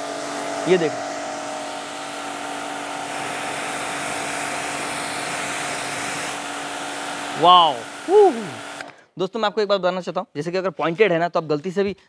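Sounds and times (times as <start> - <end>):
water jet hissing: 0.0 - 8.9
pressure washer motor humming: 0.0 - 9.0.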